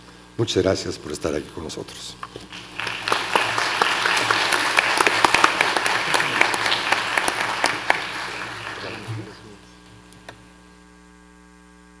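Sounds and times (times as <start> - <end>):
audience applauding: 2.5 - 9.6.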